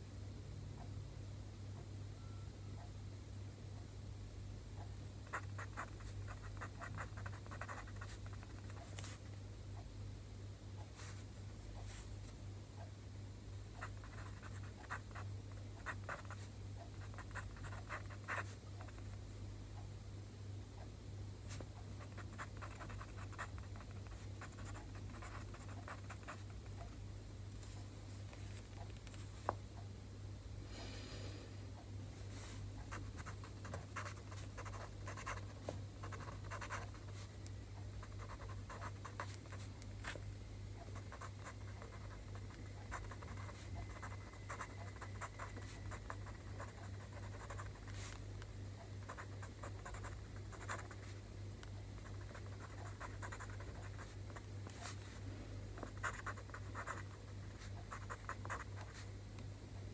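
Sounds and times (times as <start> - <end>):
steady low hum: 0.0 - 59.9
pen scratching on paper: 5.3 - 9.2, 13.8 - 15.2, 15.8 - 19.0, 21.5 - 26.6, 32.8 - 37.3, 38.0 - 40.2, 40.9 - 48.2, 49.0 - 51.1, 52.0 - 55.0, 55.8 - 59.0.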